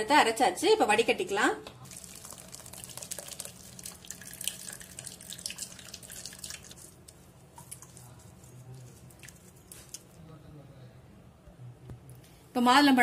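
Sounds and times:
juice dripping into steel bowl: 1.8 - 10.2.

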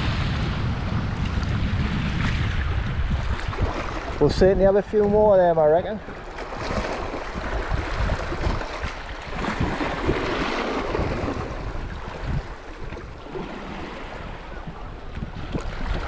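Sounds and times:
sea waves washing over rocks: 0.0 - 16.0
wind buffeting microphone: 0.0 - 16.0.

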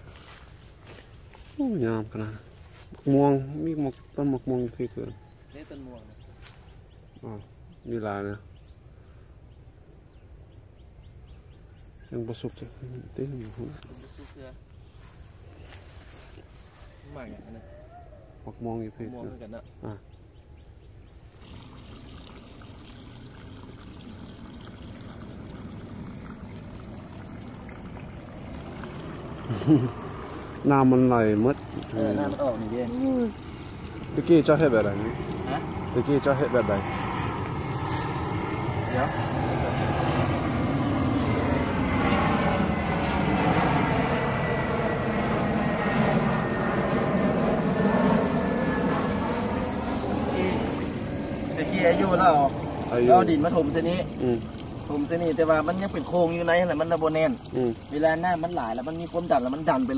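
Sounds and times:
water trickling: 21.0 - 42.0, 49.4 - 59.9
jet airliner passing overhead: 21.4 - 59.9.

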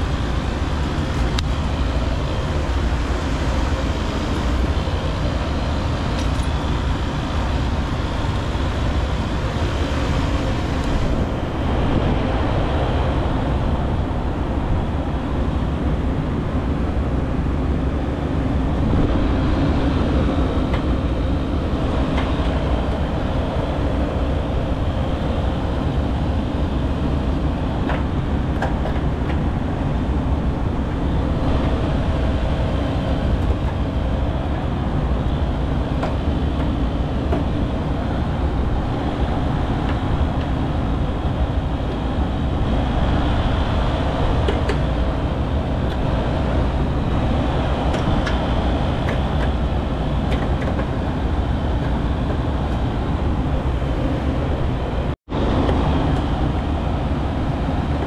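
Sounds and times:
hvac units rumbling: 0.0 - 58.0.

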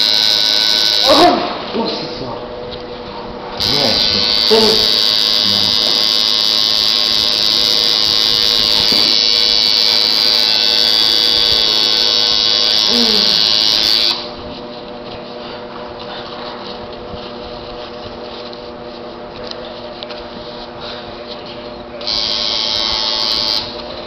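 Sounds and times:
tattoo machine buzzing: 0.0 - 1.5, 3.6 - 14.4, 22.0 - 24.0.

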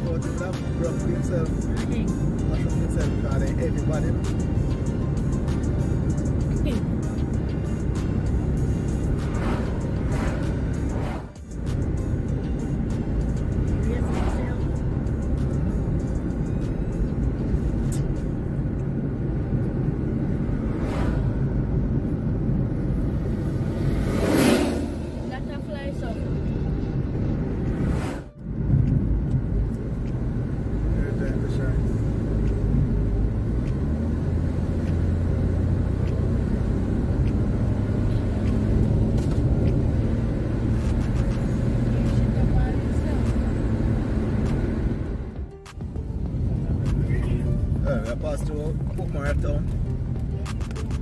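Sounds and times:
car engine and road noise: 0.0 - 51.0
brief whoosh: 9.1 - 11.4, 20.5 - 21.6, 23.2 - 25.4, 27.7 - 28.4.

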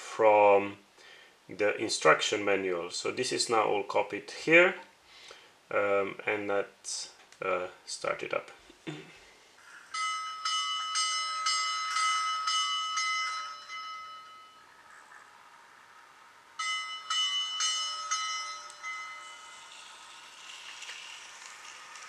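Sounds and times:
locomotive bell ringing: 9.9 - 20.8.

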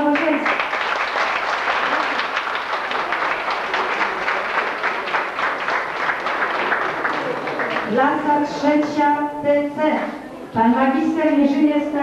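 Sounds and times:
people clapping: 0.0 - 9.0.

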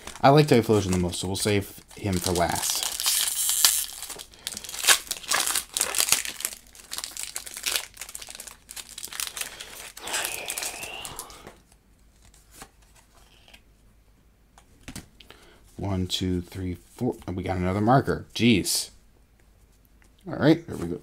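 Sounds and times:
foil wrapper tearing and crinkling: 1.9 - 11.3.

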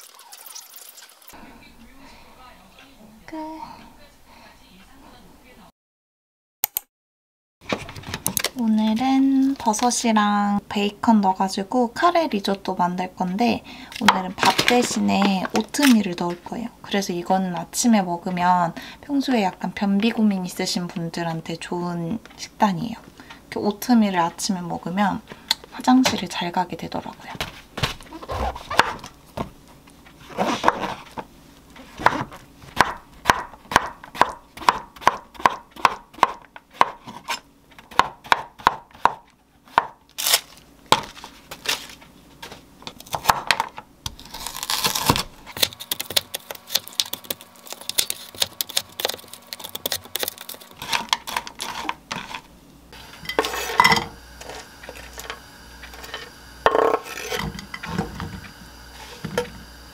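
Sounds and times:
knife chopping on wooden board: 28.7 - 29.5, 32.0 - 40.0, 43.1 - 43.7
knife scraping board: 30.2 - 31.2, 36.8 - 37.4, 44.2 - 52.5, 53.2 - 55.3, 55.9 - 59.6.

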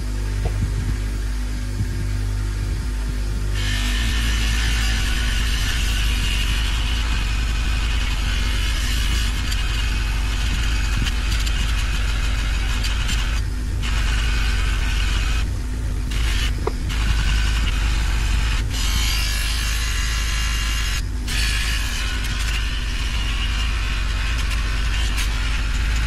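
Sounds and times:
bench grinder motor hum: 0.0 - 26.0
metal scraping on grinding wheel: 3.6 - 26.0.

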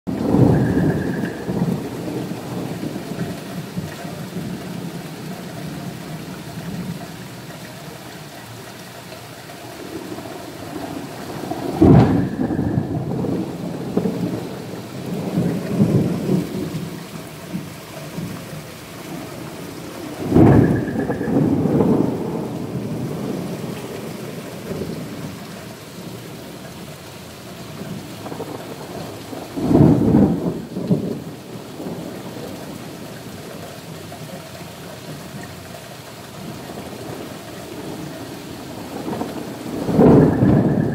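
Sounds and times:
thunder cracks and rumbles: 0.1 - 6.0, 9.8 - 18.4, 19.1 - 26.1, 27.8 - 33.5, 36.5 - 40.9
heavy rain on pavement: 0.1 - 40.9.

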